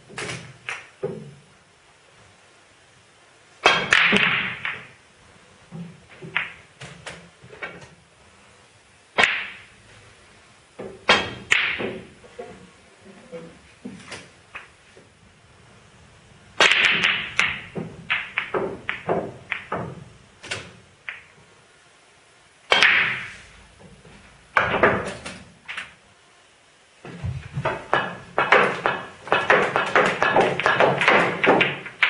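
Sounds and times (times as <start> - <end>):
snooker balls clicking: 0.1 - 1.4, 3.6 - 5.0, 5.7 - 7.9, 9.2 - 9.7, 10.8 - 12.7, 13.9 - 14.8, 16.5 - 21.4, 22.7 - 26.0, 27.0 - 32.0.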